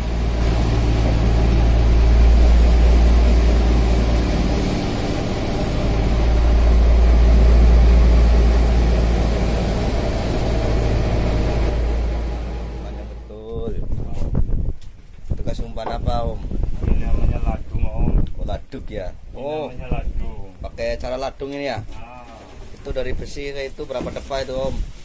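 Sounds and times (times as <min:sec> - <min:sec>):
churning water: 0:00.0 - 0:13.3
boat engine droning: 0:00.0 - 0:13.4.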